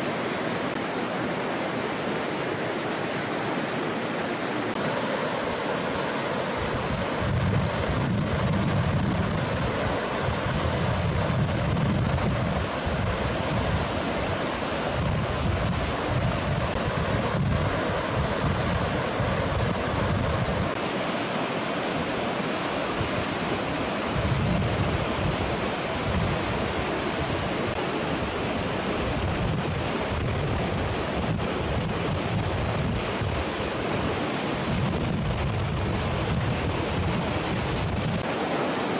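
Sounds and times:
river rapids rushing over stones: 0.0 - 38.9
wind buffeting microphone: 6.5 - 20.8, 24.1 - 27.5, 29.0 - 38.3.

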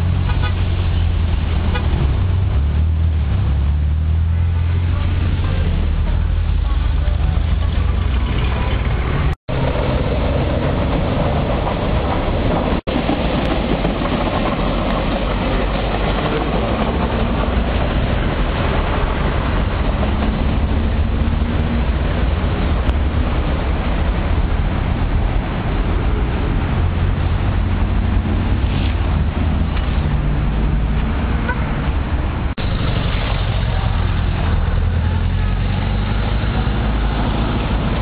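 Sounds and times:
electric train rumbling past: 0.0 - 38.0
road traffic: 0.0 - 38.0.

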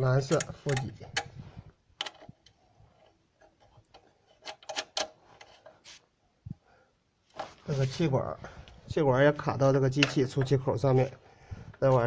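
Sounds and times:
metal and plastic rubbing: 0.0 - 6.1.

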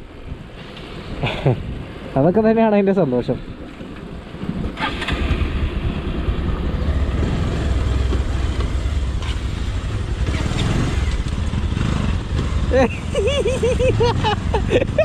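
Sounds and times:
road noise: 0.0 - 15.0
vehicle engine rumble: 3.0 - 15.0.

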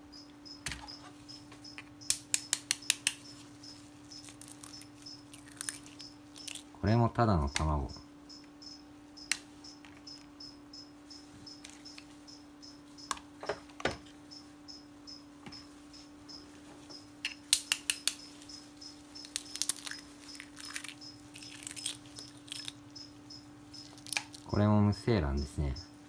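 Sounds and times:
steady low hum: 0.0 - 26.0
eggshells cracking: 2.0 - 6.8, 17.3 - 23.1, 23.7 - 24.6.

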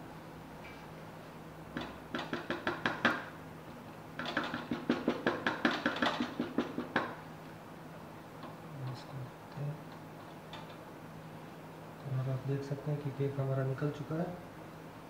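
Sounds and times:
hand tapping on metal tin: 4.2 - 7.2.

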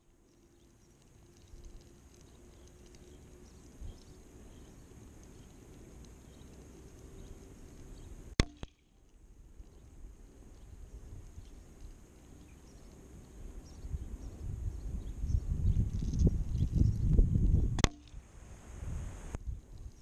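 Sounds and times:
faint wind: 0.0 - 20.0
pellet striking target crack: 8.3 - 8.9, 17.8 - 18.3.

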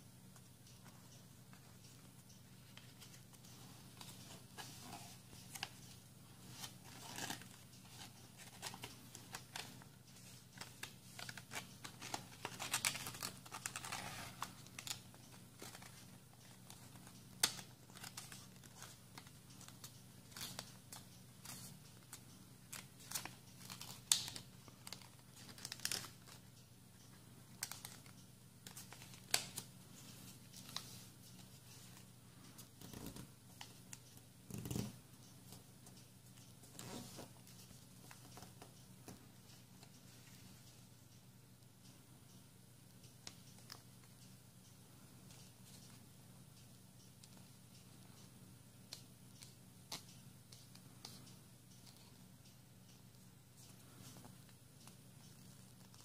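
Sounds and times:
faint low hum: 0.0 - 56.0
paper rustling and crinkling: 6.4 - 15.0
sharp clicks of paper creasing: 6.5 - 16.0, 22.7 - 26.4.

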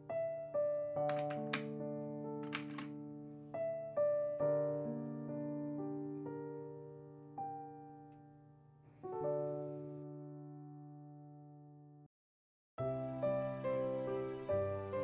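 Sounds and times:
slow solo piano: 0.0 - 11.8.

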